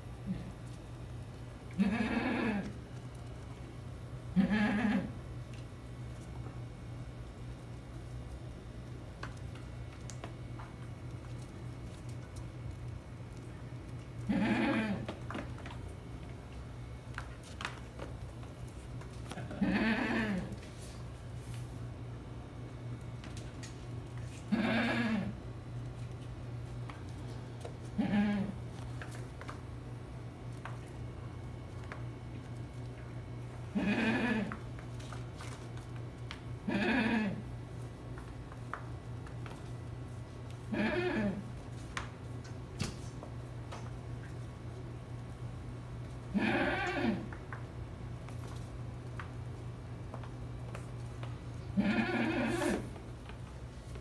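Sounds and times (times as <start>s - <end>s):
goat kids bleating: 1.7s - 2.8s, 4.3s - 5.2s, 14.3s - 15.1s, 19.4s - 20.6s, 24.5s - 25.4s, 27.9s - 28.6s, 33.7s - 34.6s, 36.6s - 37.4s, 40.7s - 41.4s, 46.3s - 47.3s, 51.7s - 52.8s.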